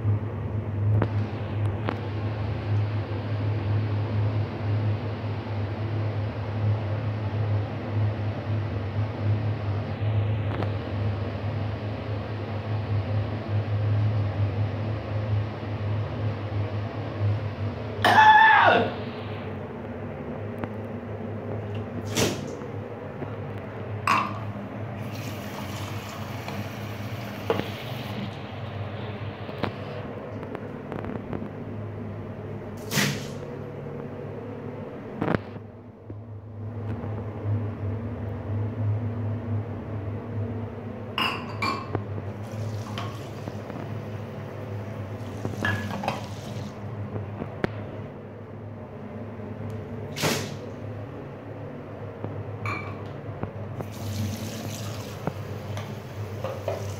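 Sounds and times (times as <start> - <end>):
mug clinking in washbasin: 24.1 - 24.5, 41.2 - 43.4, 45.5 - 46.6, 52.7 - 53.1
tap water running into mug: 25.0 - 28.0, 42.4 - 43.7, 45.2 - 46.8, 53.8 - 56.9
enamel mug clinking on ceramic: 41.2 - 41.9.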